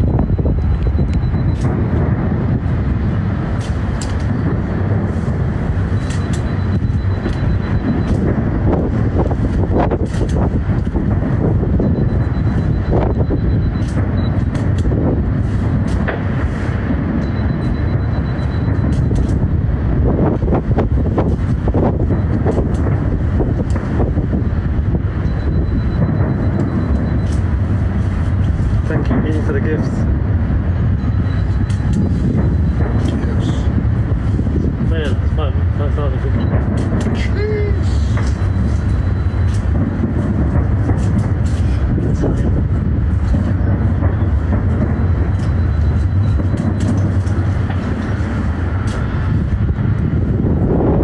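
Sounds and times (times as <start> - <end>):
fireworks booming: 0.0 - 51.0
sharp firework cracks: 0.4 - 11.7, 36.0 - 49.9.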